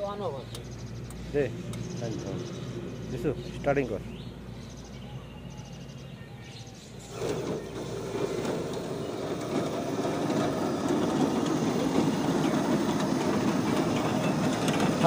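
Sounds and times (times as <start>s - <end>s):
cutting machine running: 7.1s - 15.0s.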